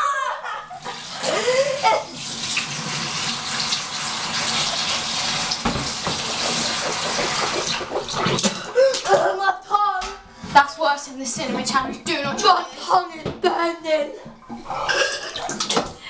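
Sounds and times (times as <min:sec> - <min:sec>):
tap running into metal sink: 0:04.4 - 0:08.1.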